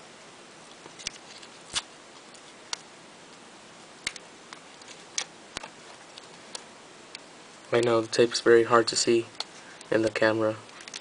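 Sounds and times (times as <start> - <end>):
faint hiss: 0.0 - 11.0
light clicks of card and tape: 9.3 - 10.0.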